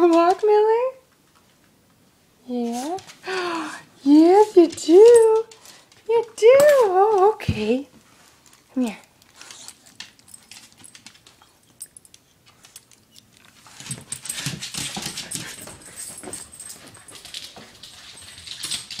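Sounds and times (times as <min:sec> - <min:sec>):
rustling: 0:04.2 - 0:19.0.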